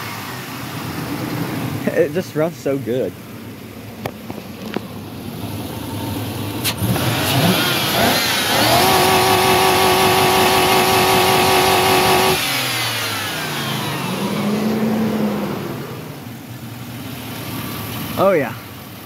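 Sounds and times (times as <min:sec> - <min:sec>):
engine revving to rev limiter: 0:06.6 - 0:16.3.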